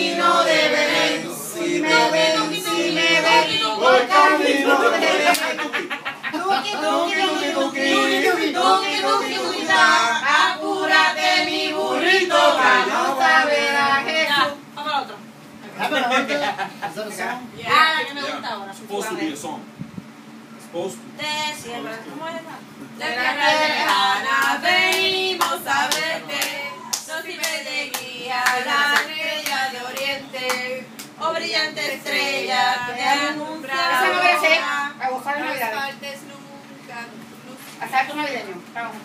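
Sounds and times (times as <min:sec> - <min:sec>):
group of people singing: 0:00.0 - 0:14.6, 0:23.0 - 0:35.0
rhythmic hand clapping: 0:05.2 - 0:05.6, 0:23.8 - 0:31.2.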